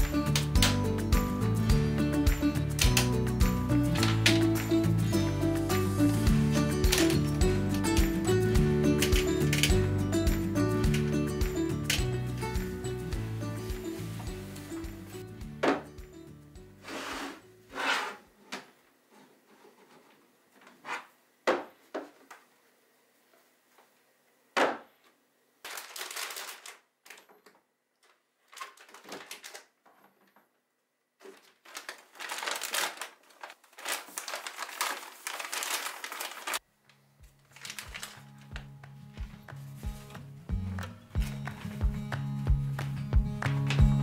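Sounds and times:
plastic packets crinkling: 25.6s - 30.2s, 31.2s - 36.6s, 37.3s - 38.8s.

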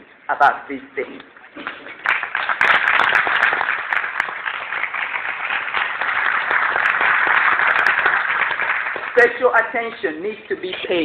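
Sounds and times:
audience applause: 1.6s - 9.5s.

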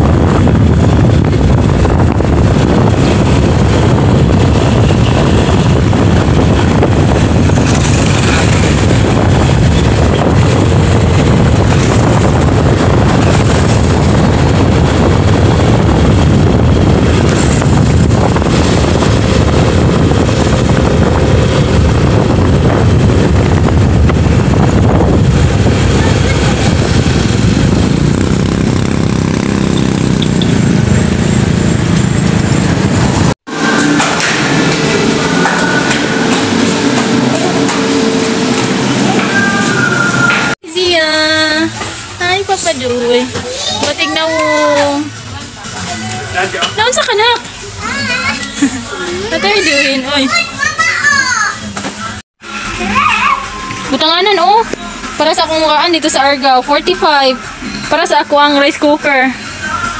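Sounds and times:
wind over microphone: 0.0s - 45.2s
vehicle engine and road noise: 0.0s - 59.9s.

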